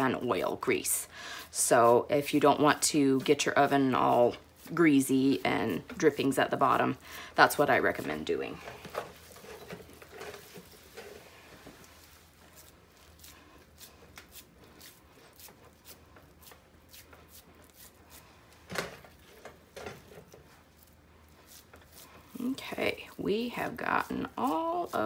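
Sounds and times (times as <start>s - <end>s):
hands patting raw meat: 11.6s - 19.1s.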